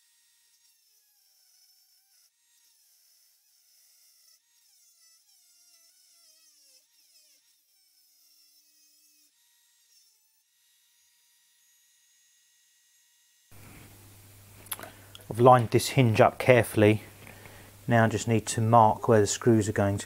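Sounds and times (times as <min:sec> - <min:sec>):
rotary tool cutting metal: 0:00.0 - 0:13.5.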